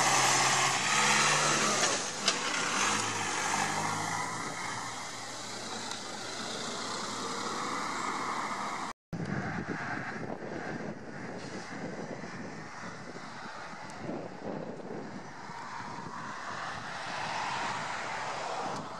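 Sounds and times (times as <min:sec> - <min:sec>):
minibus driving past: 0:00.0 - 0:08.9
busy road traffic: 0:00.0 - 0:18.9.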